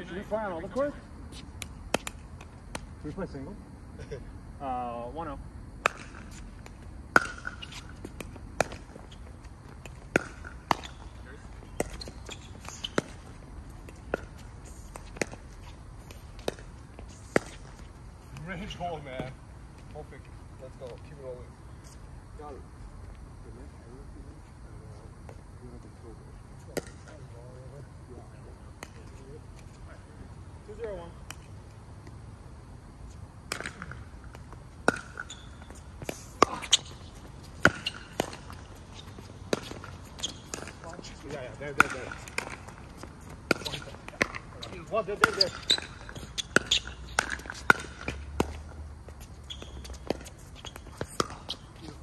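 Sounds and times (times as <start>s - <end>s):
paddles hitting plastic ball: 9.7s - 11.0s, 41.7s - 48.6s, 49.8s - 51.9s.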